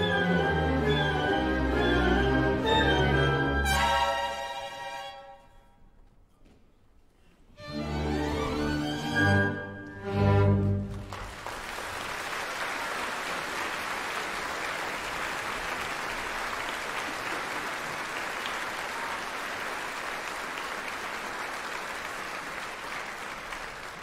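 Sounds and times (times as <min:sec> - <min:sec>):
audience applauding: 0:10.4 - 0:24.0.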